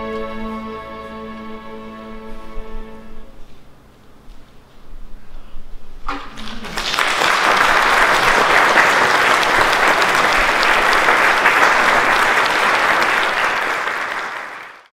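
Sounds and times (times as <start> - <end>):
audience applauding: 6.2 - 14.9.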